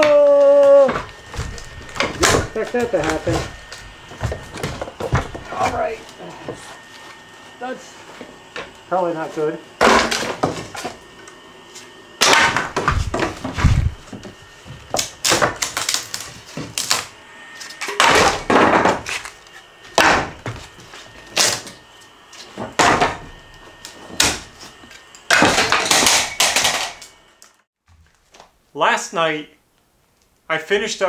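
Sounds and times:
wood pieces knocking and clattering: 0.8 - 5.8, 14.9 - 17.0, 22.6 - 23.4, 25.3 - 27.1
heavy thuds: 12.5 - 14.8.

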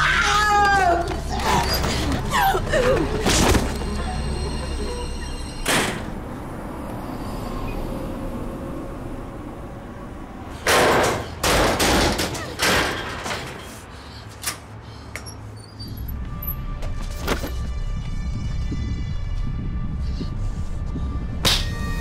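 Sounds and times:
heavy banging on door: 10.7 - 13.5
low steady drone: 16.1 - 22.0.

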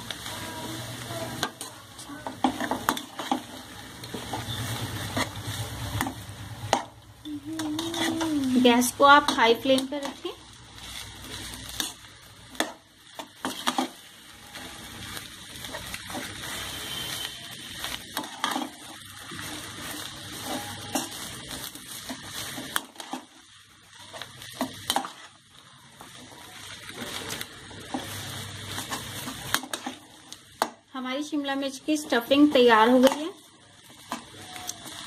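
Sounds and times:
food sizzling in a pan: 0.0 - 35.0
metal spatula scraping pan: 7.6 - 10.2, 15.7 - 23.3.

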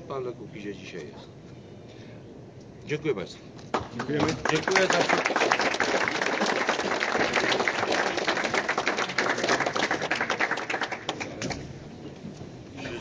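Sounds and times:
audience applauding: 3.7 - 11.6.

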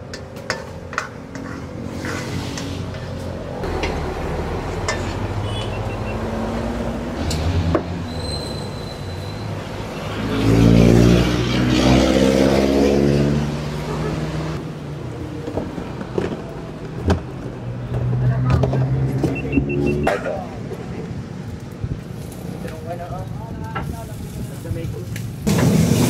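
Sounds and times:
vehicle engine passing: 1.4 - 8.1, 9.6 - 14.6.

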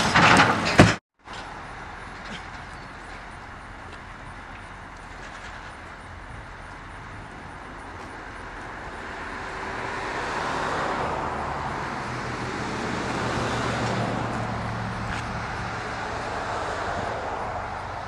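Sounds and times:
vehicle passing: 4.2 - 18.0.

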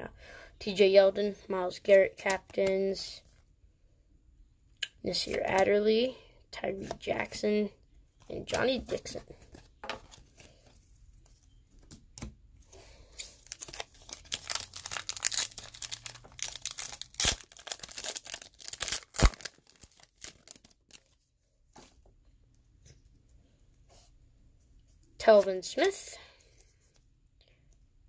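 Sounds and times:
foil wrapper tearing and crinkling: 13.2 - 21.2.

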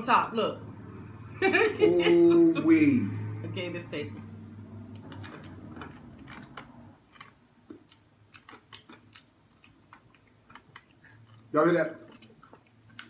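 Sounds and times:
crunching of chewed snack: 5.0 - 13.0.

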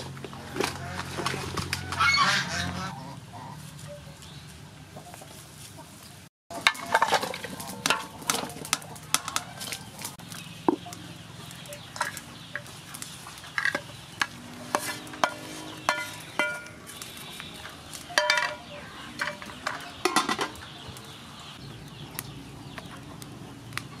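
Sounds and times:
chickens clucking: 0.0 - 24.0
metal pot clanking on stove: 13.6 - 16.8, 18.2 - 20.6.

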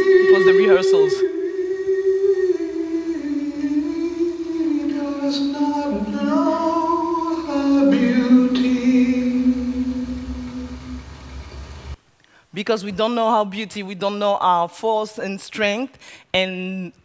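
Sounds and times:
person singing unaccompanied: 0.0 - 11.2.

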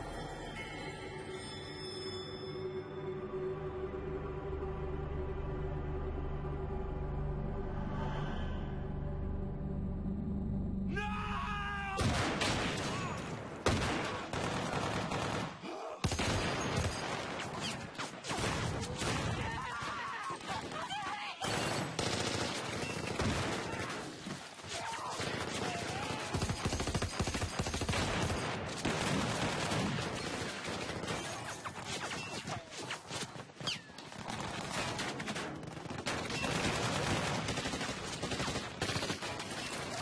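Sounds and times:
heavy automatic gunfire: 13.6 - 17.5, 21.4 - 24.1, 25.2 - 31.6, 34.2 - 40.0
machine-gun fire: 13.6 - 17.6, 21.4 - 24.2, 25.2 - 32.2, 34.1 - 40.0.

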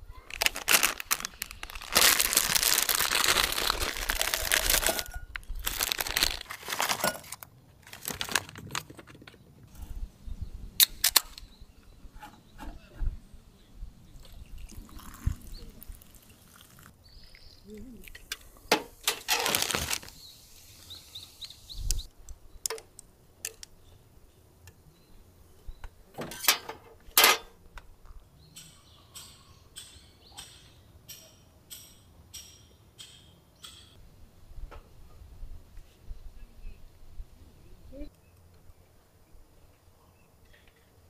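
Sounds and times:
drink fizzing: 14.2 - 17.5
drink pouring into glass: 14.5 - 16.9.

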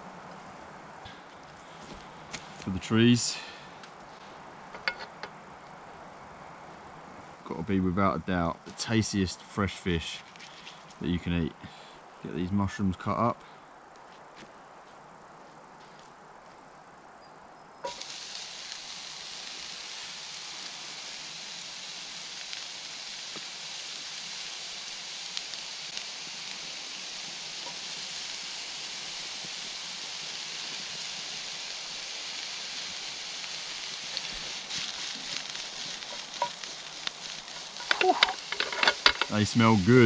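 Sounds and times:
mushrooms sizzling in frying pan: 17.8 - 40.0
pan stirring clicks and scrapes: 34.1 - 39.4.

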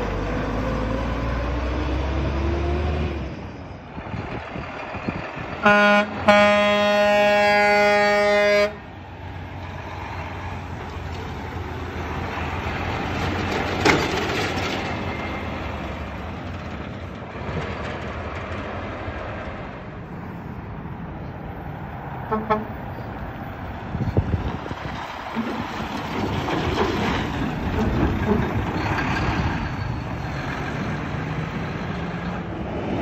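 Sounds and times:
truck diesel engine passing: 0.0 - 33.0
tyre and road noise: 0.0 - 33.0
truck horn toot: 5.6 - 8.8, 22.3 - 22.8.

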